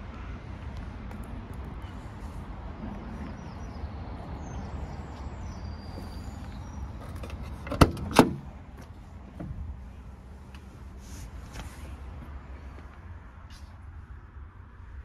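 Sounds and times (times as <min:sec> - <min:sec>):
truck door metallic clacks: 0:07.2 - 0:08.5.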